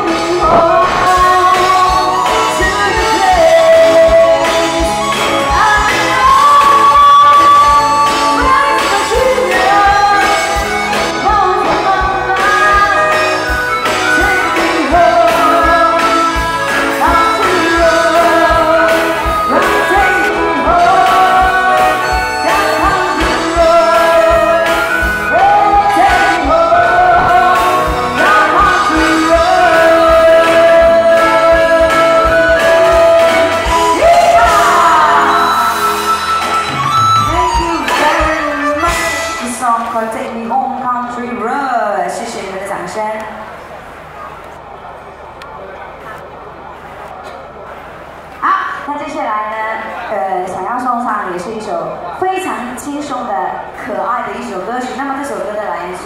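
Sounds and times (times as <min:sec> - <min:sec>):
woman singing into a microphone: 0:00.0 - 0:36.3, 0:37.2 - 0:43.4
musical accompaniment with steady beat: 0:00.0 - 0:39.6.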